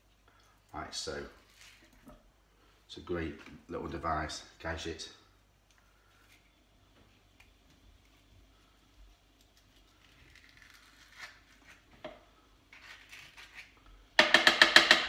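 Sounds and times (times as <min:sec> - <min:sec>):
tool tapping plastic bowl: 0:14.2 - 0:15.0.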